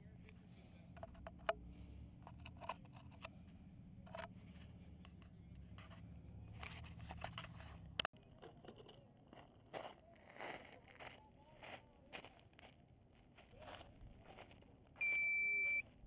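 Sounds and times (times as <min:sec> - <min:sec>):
camera handling clicks and rubbing: 0:05.0 - 0:11.2.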